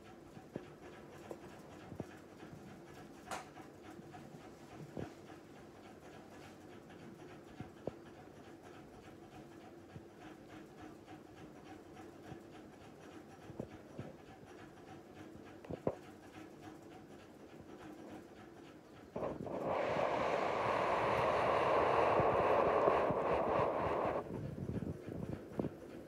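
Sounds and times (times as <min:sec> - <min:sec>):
low hum: 0:19.2 - 0:24.8.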